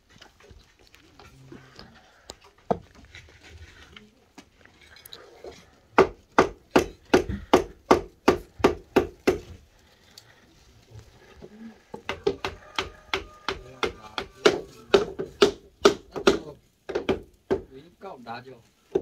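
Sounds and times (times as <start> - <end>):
hammer knocking on timber: 6.0 - 9.5, 11.9 - 17.7.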